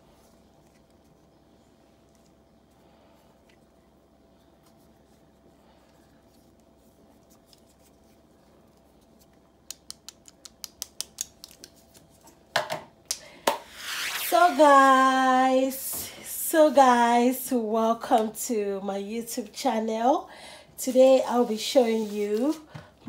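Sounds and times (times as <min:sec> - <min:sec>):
thin steady hum: 0:11.4 - 0:23.0.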